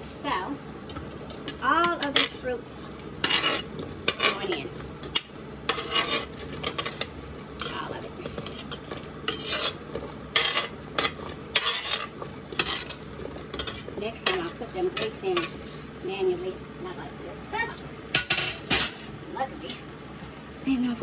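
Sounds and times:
steady low hum: 0.0 - 21.0
metal spoon scraping a steel pot: 3.2 - 15.6.

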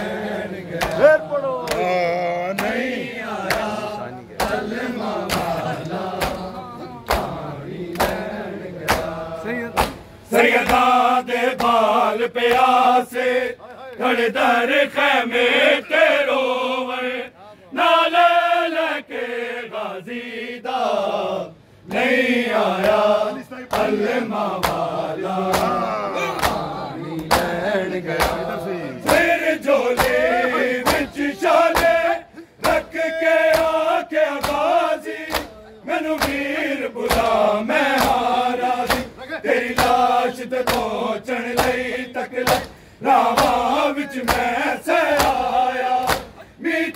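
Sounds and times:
man chanting a lament: 0.6 - 7.2, 25.2 - 46.9
men slapping chests: 0.7 - 10.9, 11.5 - 12.8, 22.7 - 46.5.

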